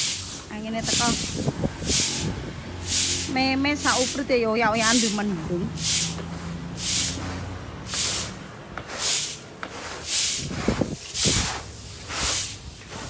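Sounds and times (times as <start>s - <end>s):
broom sweeping paving stones: 0.0s - 13.0s.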